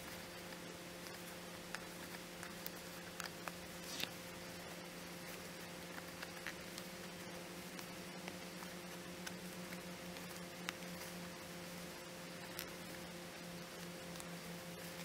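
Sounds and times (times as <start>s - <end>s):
faint steady hum: 0.0s - 15.0s
needle and thread ticks and rustles: 0.0s - 15.0s.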